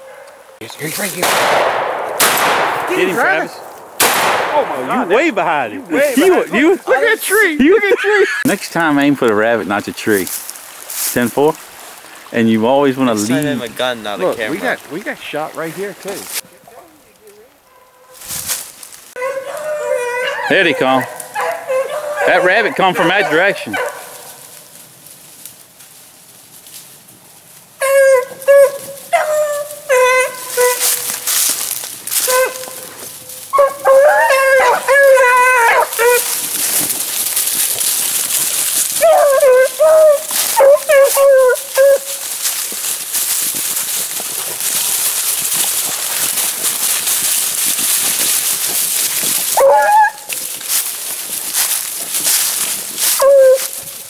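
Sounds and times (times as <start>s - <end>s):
leaves crunching underfoot: 8.4s - 22.2s, 23.7s - 54.0s
dog yelp: 19.2s - 24.3s, 27.8s - 31.1s, 32.2s - 32.9s, 33.5s - 36.3s, 39.0s - 42.2s, 49.5s - 50.3s, 53.1s - 53.8s
hounds baying: 19.2s - 24.6s, 27.8s - 31.3s, 32.1s - 36.8s, 38.7s - 42.6s, 48.2s - 50.8s, 51.5s - 54.0s.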